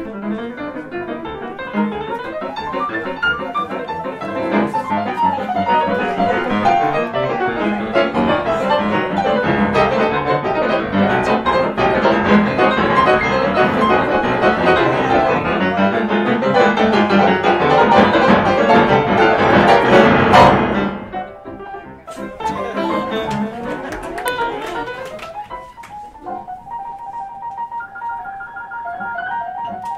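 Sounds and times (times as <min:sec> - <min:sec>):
grand pianos playing jazz: 0:00.0 - 0:29.9.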